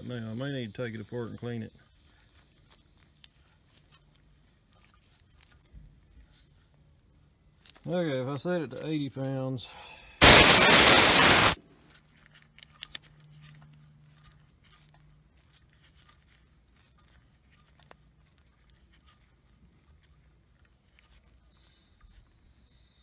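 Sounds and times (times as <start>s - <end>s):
faint ticks and handling: 0.0s - 9.6s, 11.9s - 22.9s
compressed gas hissing: 10.2s - 11.6s.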